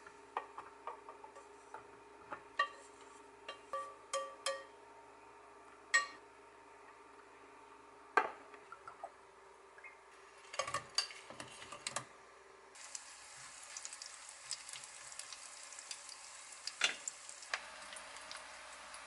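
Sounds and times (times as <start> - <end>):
chopsticks tapping pan: 3.5 - 4.7
food sizzling in oil: 12.8 - 19.0.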